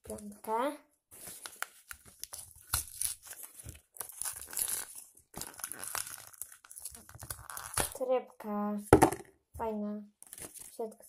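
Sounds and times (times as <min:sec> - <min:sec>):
paper ripping: 0:01.2 - 0:08.0
wrapping paper crinkling: 0:01.2 - 0:08.0.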